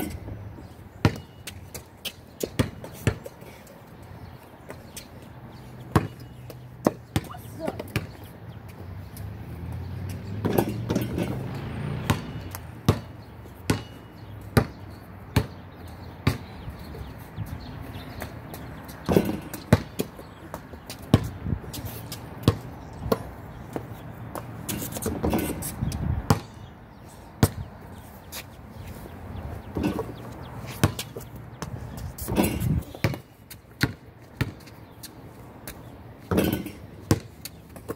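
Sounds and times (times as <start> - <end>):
basketball bouncing: 1.0 - 3.3, 5.9 - 8.2, 10.1 - 15.6, 16.2 - 17.0, 18.2 - 21.4, 22.4 - 25.6, 26.3 - 26.6, 27.4 - 27.7, 29.7 - 30.2, 30.8 - 34.7, 36.2 - 37.9.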